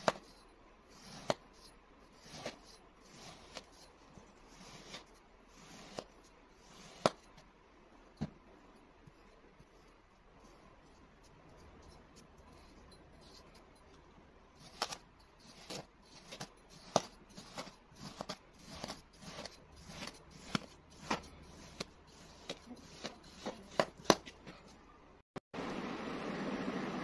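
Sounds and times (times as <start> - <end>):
knife crunching through sand: 14.6 - 24.3.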